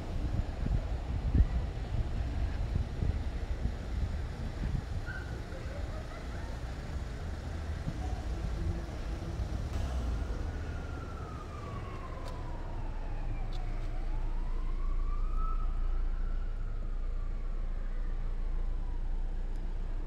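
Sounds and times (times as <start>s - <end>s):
wind rumble on microphone: 0.0s - 9.8s
distant siren wailing: 9.7s - 20.0s.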